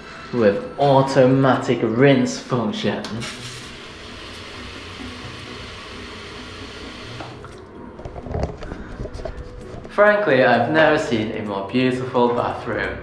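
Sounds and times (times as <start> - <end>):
toilet flush water rushing: 3.2 - 7.6.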